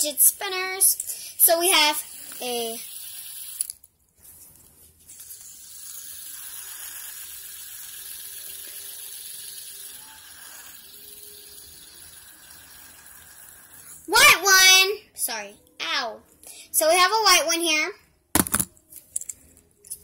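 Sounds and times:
fidget spinner whirring: 0.1s - 3.8s, 5.1s - 14.2s.

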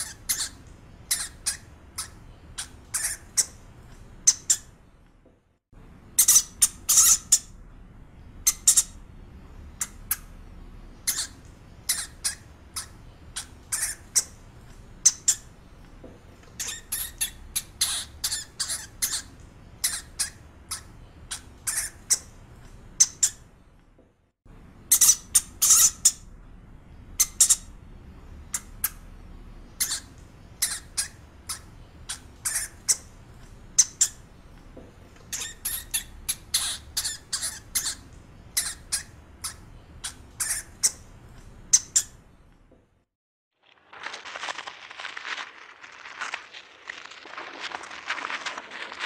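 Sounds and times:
hamster squeaking: 0.0s - 3.6s, 4.2s - 4.7s, 6.2s - 7.5s, 11.0s - 14.4s, 15.0s - 15.5s, 16.5s - 22.3s, 24.9s - 26.2s, 29.8s - 33.1s, 35.2s - 41.1s, 41.7s - 42.2s.

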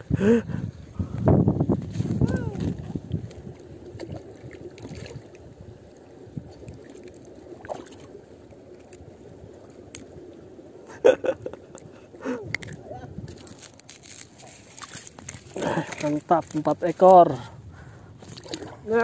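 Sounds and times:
fish handling noise: 11.8s - 17.3s.

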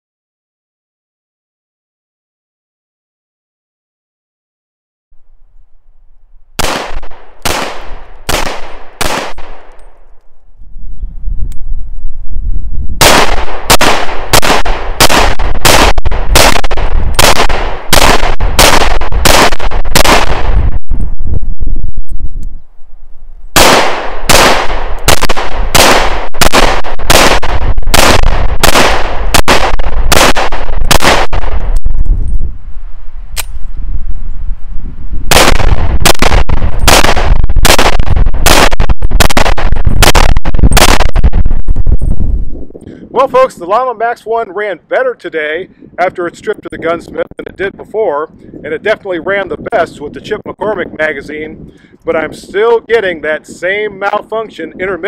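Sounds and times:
pistol gunshots: 6.6s - 10.0s, 13.0s - 20.7s, 23.6s - 31.8s, 35.3s - 41.2s.

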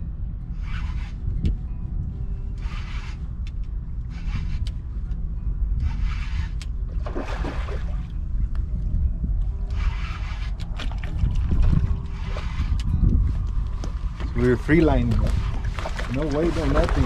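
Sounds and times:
wind on microphone: 0.0s - 17.0s
fishing reel cranking: 2.6s - 4.8s, 5.8s - 6.7s, 9.7s - 12.9s.

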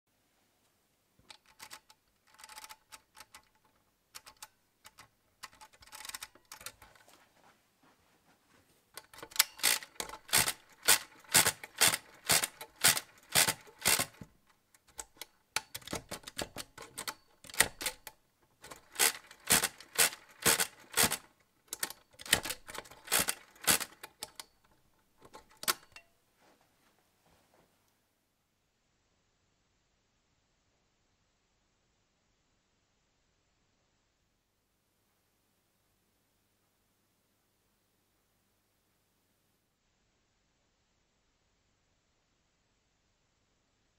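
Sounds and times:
calculator mechanism clicking: 1.3s - 6.9s, 9.0s - 26.0s
rapid clacking of hand crank: 4.2s - 6.9s, 9.0s - 26.0s.

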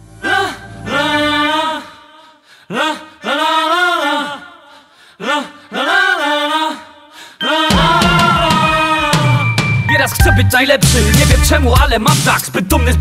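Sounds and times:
person singing unaccompanied: 7.4s - 13.0s.

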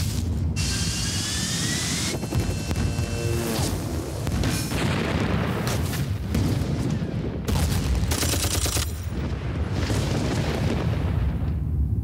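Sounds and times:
crackling gunfire: 2.1s - 11.4s
deep booming rumble of explosions: 3.8s - 8.4s, 9.1s - 12.0s.

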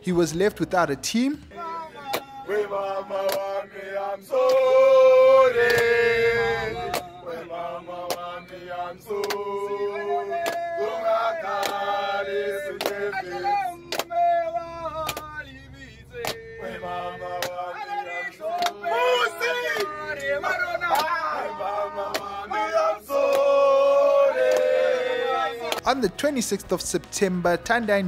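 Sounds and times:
men singing a chant: 1.4s - 25.9s
hands clapping on a beat: 2.0s - 2.4s, 3.2s - 3.6s, 4.3s - 4.7s, 5.6s - 6.0s, 6.8s - 7.2s, 8.0s - 8.5s, 9.1s - 14.4s, 15.0s - 15.4s, 16.2s - 16.5s, 17.3s - 17.7s, 18.5s - 18.9s, 19.7s - 20.1s, 20.8s - 23.6s, 24.4s - 26.1s.

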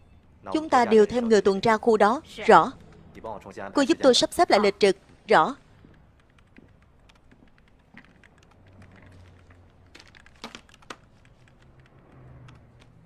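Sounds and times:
faint keyboard typing: 4.9s - 13.0s.

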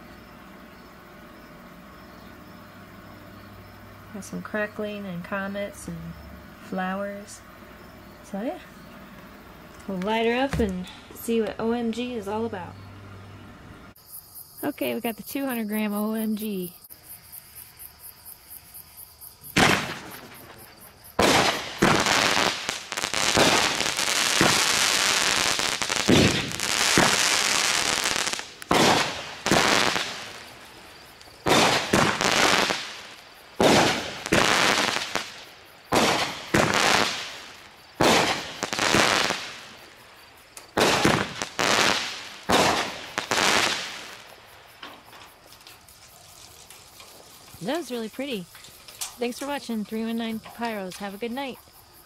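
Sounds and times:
crickets chirping: 0.0s - 52.0s
fireworks crackling: 8.2s - 12.5s, 18.3s - 51.6s
fireworks bangs: 19.3s - 50.9s.

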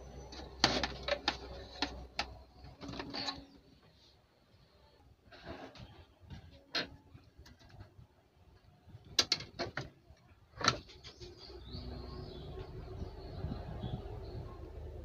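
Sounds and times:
clicks and knocks of handling: 0.2s - 3.5s, 9.0s - 11.3s
low rumble: 11.6s - 15.0s.

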